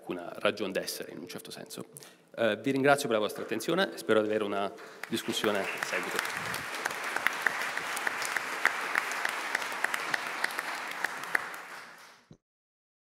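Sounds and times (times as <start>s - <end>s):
audience applauding: 4.8s - 12.3s.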